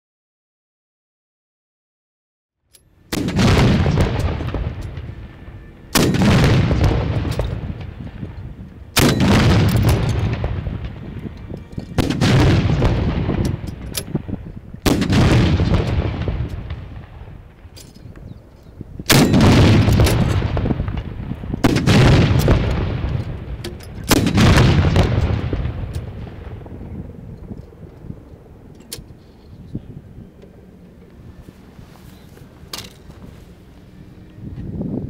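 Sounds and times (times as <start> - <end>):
howitzer shots: 3.1 - 18.0, 19.1 - 27.9.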